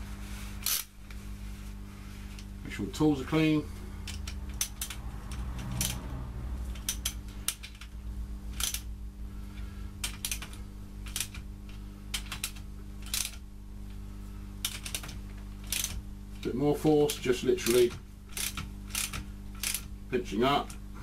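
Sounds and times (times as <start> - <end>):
steady low hum: 0.0 - 21.0
socket ratchet clicking: 4.0 - 6.0, 6.7 - 8.0, 8.6 - 8.9, 10.0 - 11.4, 12.1 - 13.4, 14.6 - 16.0, 17.0 - 19.9.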